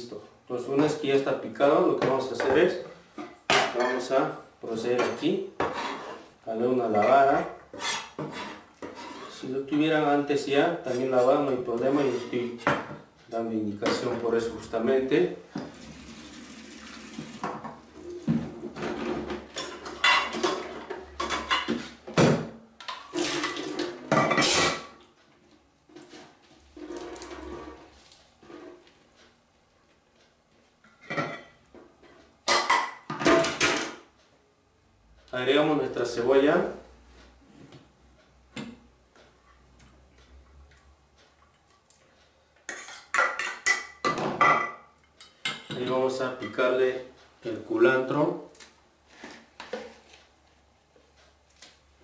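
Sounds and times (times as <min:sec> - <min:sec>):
knife scraping steel bowl: 0:05.6 - 0:06.3, 0:07.7 - 0:09.5, 0:26.8 - 0:28.8
tap water running: 0:15.6 - 0:17.8, 0:26.8 - 0:27.6.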